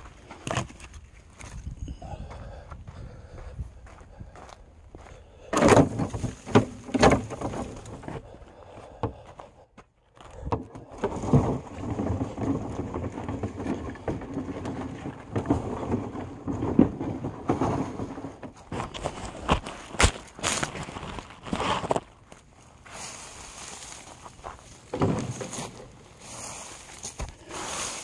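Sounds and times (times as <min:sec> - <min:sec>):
wheels rumbling on ground: 0:00.0 - 0:09.5, 0:10.1 - 0:28.0
cart knocks and bumps: 0:05.5 - 0:08.3, 0:10.3 - 0:22.0, 0:23.5 - 0:28.0.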